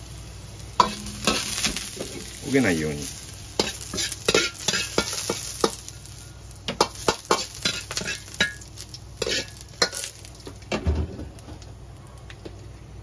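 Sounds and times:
garlic sizzling: 0.0s - 13.0s
wok knocking down: 0.8s - 5.9s, 6.6s - 11.6s
ladle scraping wok: 0.8s - 10.5s.

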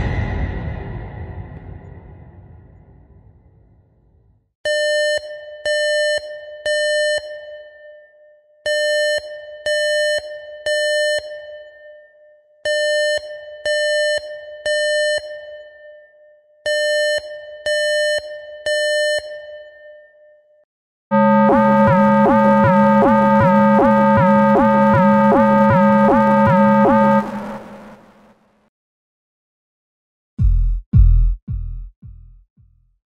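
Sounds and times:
smoke alarm beeping: 21.1s - 28.0s.

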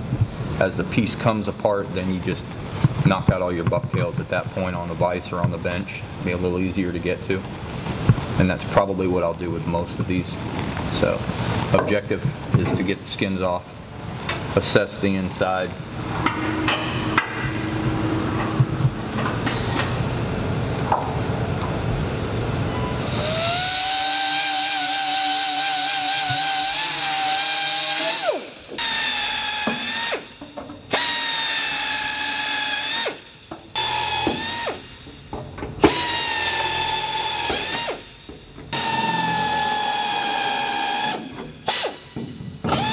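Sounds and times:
cordless drill drilling rivets: 23.2s - 35.2s, 35.8s - 42.9s.

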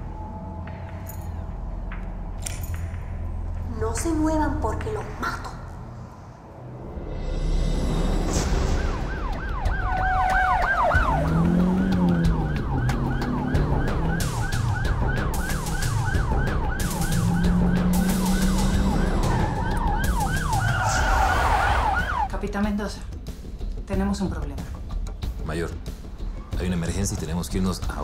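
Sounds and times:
police siren yelping: 8.4s - 22.4s.

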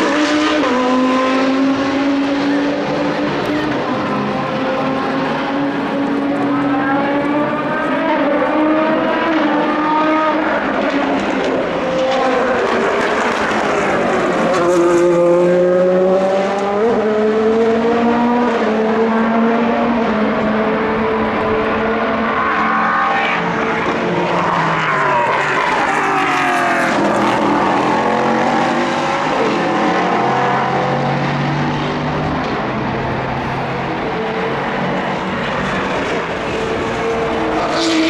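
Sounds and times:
race car engine passing: 0.0s - 38.0s
engine revving through gears: 14.6s - 20.2s.

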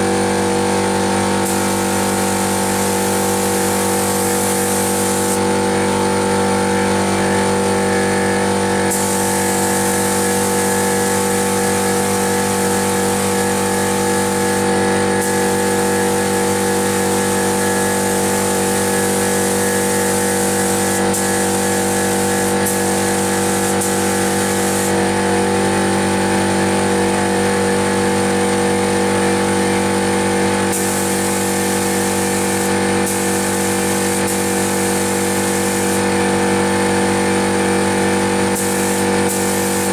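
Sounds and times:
air compressor droning: 0.0s - 39.9s
spray gun hissing: 1.4s - 5.5s, 8.8s - 25.1s, 30.7s - 36.1s, 38.5s - 39.9s.

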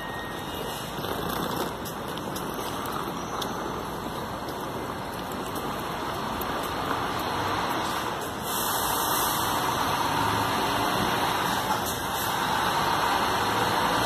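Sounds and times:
bus engine rumble: 0.0s - 14.0s
air brake hiss: 8.4s - 9.6s.

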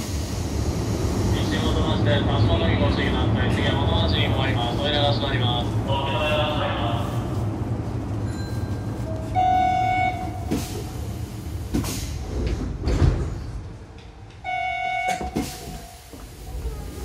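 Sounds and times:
sliding doors hissing: 10.4s - 13.6s, 15.3s - 17.0s
train door chime: 14.4s - 15.8s.

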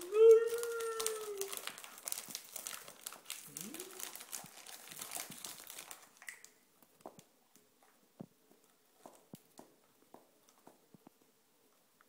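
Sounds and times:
wrapping paper crinkling: 0.0s - 7.7s.

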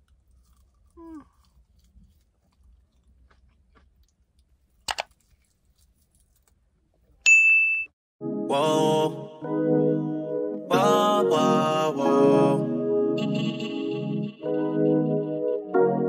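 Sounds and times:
faint chewing: 0.0s - 7.2s
person humming: 1.0s - 1.3s, 8.5s - 9.5s, 10.6s - 13.9s
high ding: 7.3s - 7.9s.

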